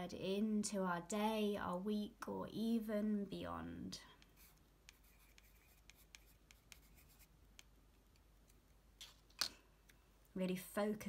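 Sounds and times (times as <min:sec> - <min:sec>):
pencil scratching on card: 0:04.2 - 0:07.7.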